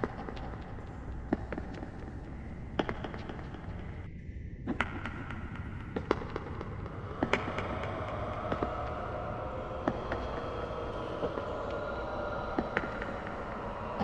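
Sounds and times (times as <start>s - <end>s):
low rumble: 6.9s - 14.0s.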